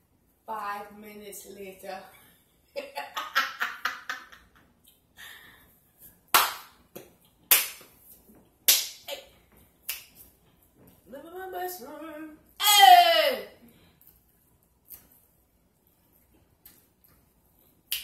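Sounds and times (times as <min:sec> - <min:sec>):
hand claps: 0:06.3 - 0:08.0, 0:08.7 - 0:09.1
woman singing: 0:11.1 - 0:13.4.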